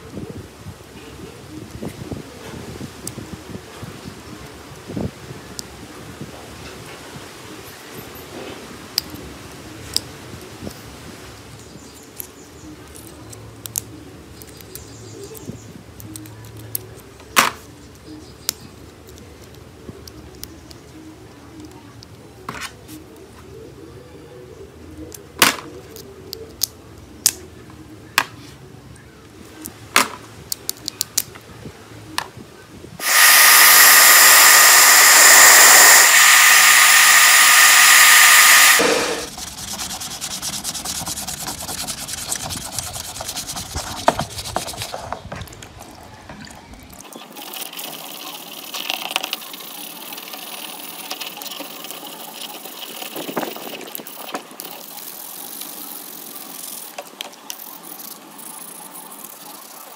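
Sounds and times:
hair dryer blowing: 33.0 - 39.4
hands scraping plastic housing: 39.2 - 46.0.

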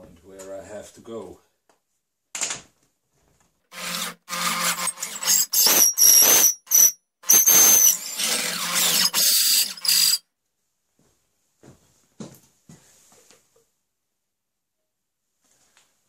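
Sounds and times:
electric drill boring wood: 3.7 - 10.2
drill bit squealing: 3.8 - 10.2.

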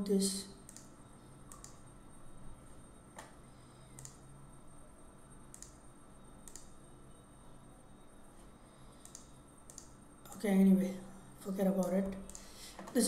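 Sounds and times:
low steady hum: 0.0 - 13.0
faint computer mouse clicks: 0.7 - 0.9, 1.5 - 1.8, 3.2 - 4.2, 5.5 - 5.8, 6.4 - 6.7, 9.0 - 10.4.

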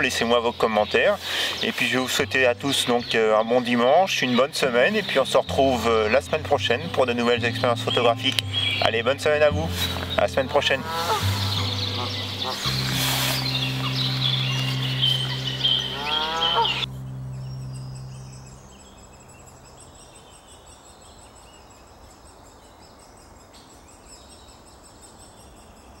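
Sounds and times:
rising calls: 0.0 - 22.0
small birds chirping: 0.0 - 26.0
held low musical note: 1.8 - 20.2.

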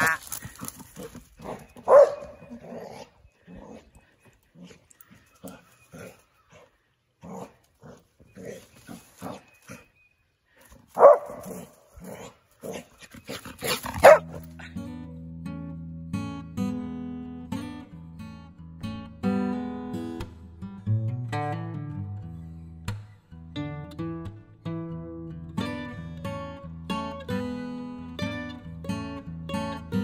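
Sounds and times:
dog barking: 1.9 - 3.0, 11.0 - 12.8, 14.0 - 14.4
acoustic guitar music: 14.1 - 30.0.

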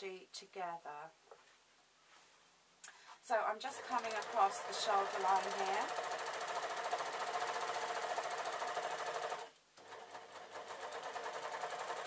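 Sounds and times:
overlocker stitching fabric: 3.6 - 12.0.

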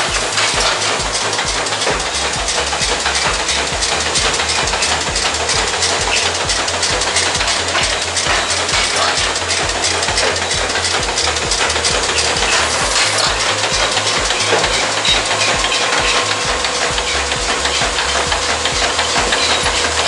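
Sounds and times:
low mechanical pulse: 0.0 - 20.0
packing machine clatter: 0.0 - 20.0.

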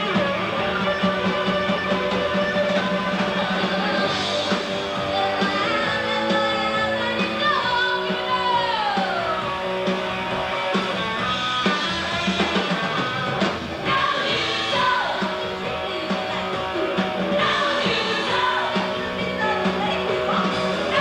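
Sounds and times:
rock band playing: 0.0 - 21.0
woman singing: 3.4 - 9.5, 13.8 - 21.0.

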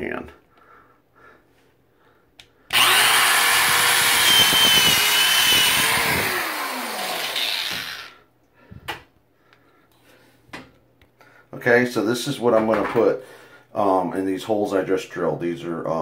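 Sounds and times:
electric drill boring into drywall: 2.7 - 8.2.

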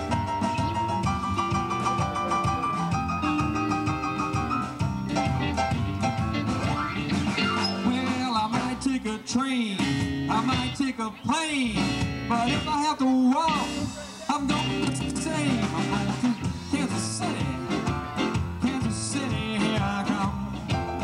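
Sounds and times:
electric guitar sliding notes: 0.0 - 8.6
drums: 0.0 - 21.0
rock and roll band playing: 0.0 - 21.0
upright bass: 0.0 - 21.0.

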